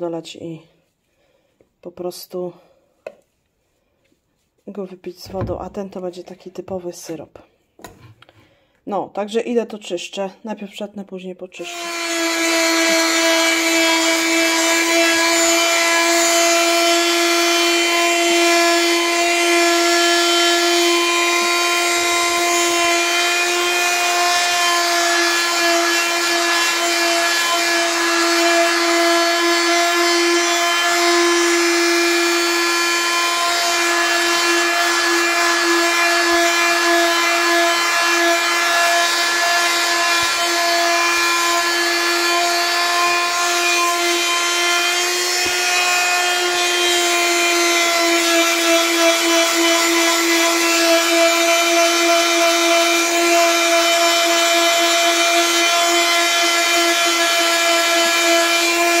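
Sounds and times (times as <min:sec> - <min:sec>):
electric sander on wood: 0:11.6 - 0:59.0.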